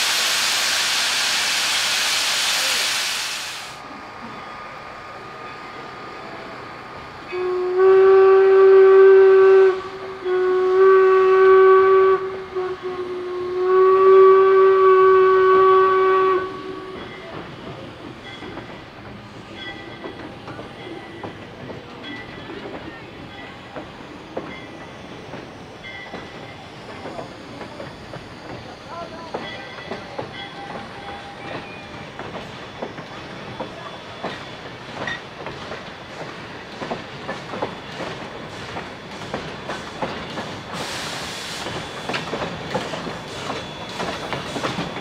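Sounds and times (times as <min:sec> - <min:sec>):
train rumbling on rails: 0:00.0 - 0:45.0
steam locomotive whistle: 0:07.3 - 0:17.1.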